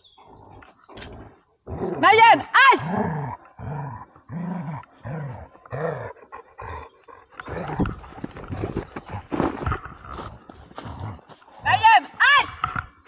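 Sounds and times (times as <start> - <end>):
scuffling and knocking: 7.8 - 11.5.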